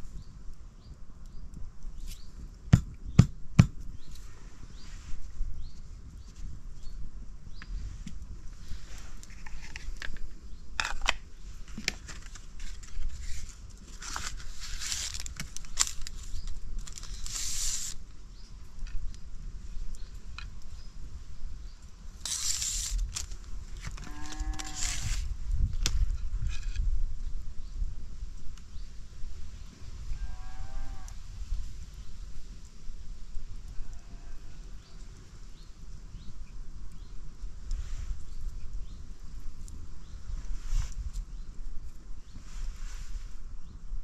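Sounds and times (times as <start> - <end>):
bursts of hiss: 16.9 - 18.0, 22.2 - 23.4.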